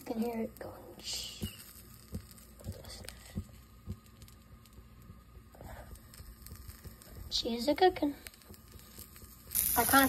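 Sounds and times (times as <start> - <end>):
meat frying in a pan: 0.0 - 10.0
steady hum: 0.0 - 10.0
soft low thumps: 1.3 - 7.6.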